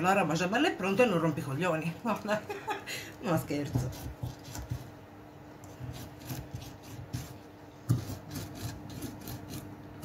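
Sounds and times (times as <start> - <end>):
knife chopping on wooden board: 3.6 - 4.9, 5.7 - 9.7.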